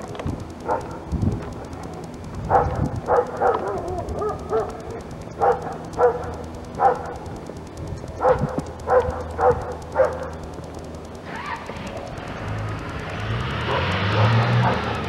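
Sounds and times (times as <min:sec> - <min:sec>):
dog barking: 0:00.6 - 0:01.0, 0:02.5 - 0:07.2, 0:08.2 - 0:10.4, 0:13.6 - 0:15.0.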